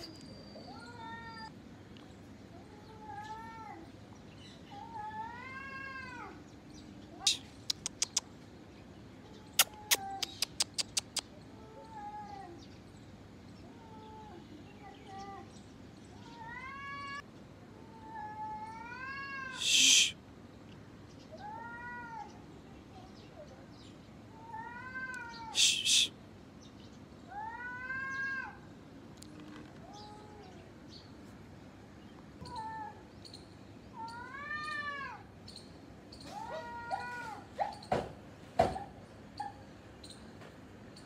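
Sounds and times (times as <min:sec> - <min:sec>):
cats yowling: 0:00.0 - 0:01.6, 0:02.6 - 0:03.9, 0:04.7 - 0:06.4, 0:09.2 - 0:12.6, 0:13.6 - 0:15.5, 0:16.2 - 0:20.2, 0:21.4 - 0:22.4, 0:24.3 - 0:26.1, 0:27.3 - 0:28.6, 0:29.8 - 0:30.8, 0:32.4 - 0:33.0, 0:33.9 - 0:35.3, 0:36.2 - 0:37.8
cat hissing: 0:09.5 - 0:11.2, 0:19.5 - 0:20.2, 0:25.2 - 0:26.2.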